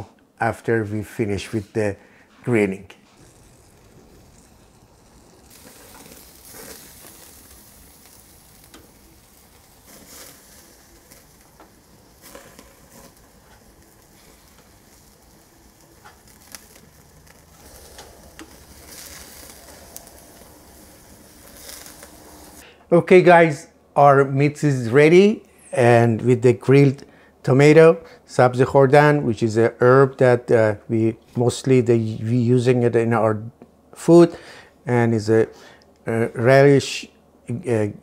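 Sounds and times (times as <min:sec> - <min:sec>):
fire crackles and pops: 0:03.0 - 0:22.6
meat sizzling on grill: 0:03.1 - 0:22.6.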